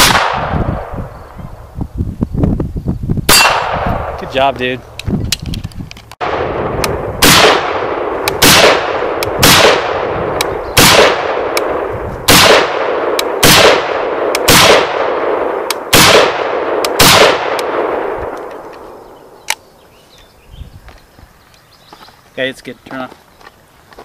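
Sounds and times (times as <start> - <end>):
rifle gunshots: 0.0 - 0.9, 3.3 - 4.5, 6.2 - 18.9
rolling echo of gunshots: 0.0 - 0.9, 3.3 - 4.5, 6.2 - 18.9.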